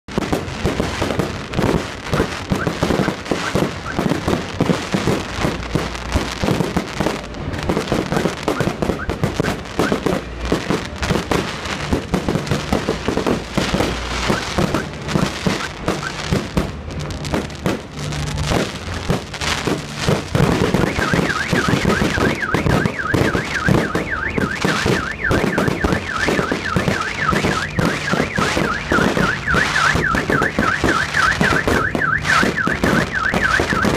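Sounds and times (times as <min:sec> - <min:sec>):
fireworks bursting and crackling: 0:00.0 - 0:33.9
car alarm warbling: 0:02.1 - 0:04.1, 0:14.2 - 0:16.3, 0:20.6 - 0:33.9.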